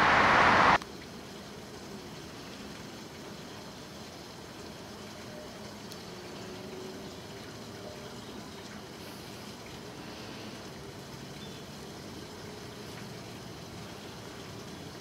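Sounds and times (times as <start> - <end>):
light rain on standing water: 0.0 - 15.0.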